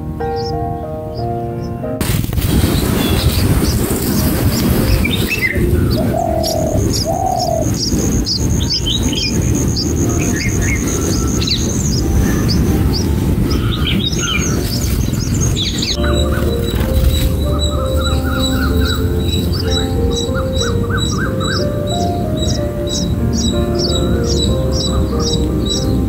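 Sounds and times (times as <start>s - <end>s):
low background rumble: 2.0s - 26.0s
birds chirping: 2.5s - 26.0s
low coo-like notes: 15.4s - 26.0s.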